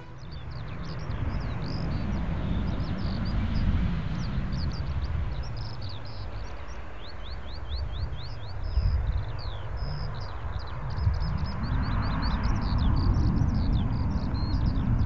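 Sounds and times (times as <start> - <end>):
birds chirping: 0.0 - 15.0
distant jet engines rumbling: 0.0 - 15.0.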